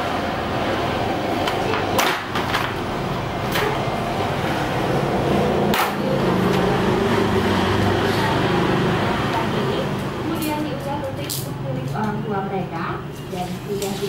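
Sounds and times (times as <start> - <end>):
steady background hum: 0.0 - 14.0.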